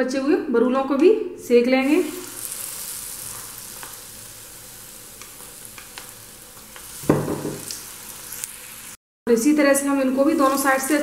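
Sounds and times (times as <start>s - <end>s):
potatoes sizzling in hot oil: 1.8s - 9.0s, 10.0s - 11.0s
thump: 7.0s - 7.6s.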